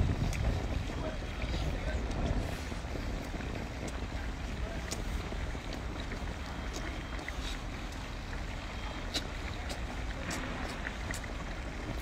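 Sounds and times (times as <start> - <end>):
steady low rumble: 0.0 - 12.0
wet chewing and sucking: 9.0 - 11.6.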